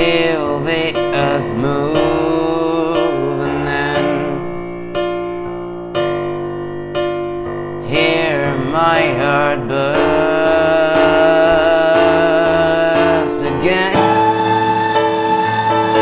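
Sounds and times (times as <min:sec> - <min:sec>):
piano ballad chords: 0:00.0 - 0:16.0
wavering melody line: 0:13.9 - 0:16.0.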